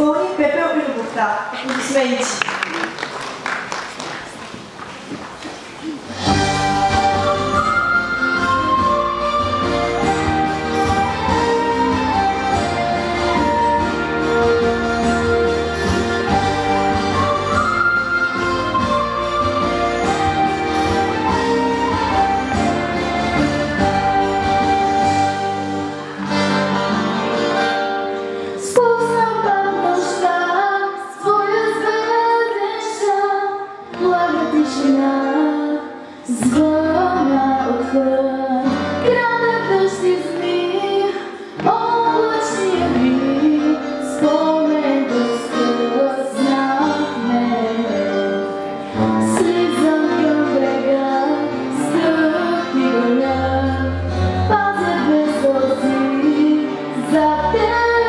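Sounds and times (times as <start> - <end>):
instrumental accompaniment: 6.0 - 58.0
girl singing into microphone: 28.6 - 58.0.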